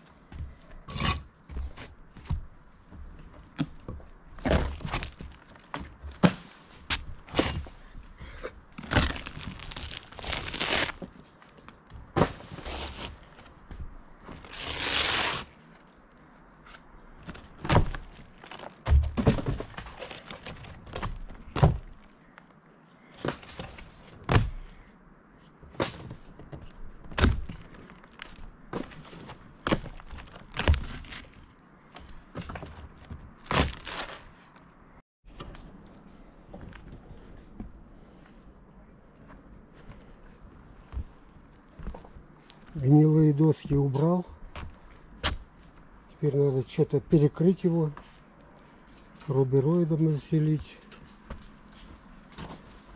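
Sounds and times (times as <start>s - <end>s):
footsteps on roof: 1.4s - 7.7s, 39.2s - 42.8s.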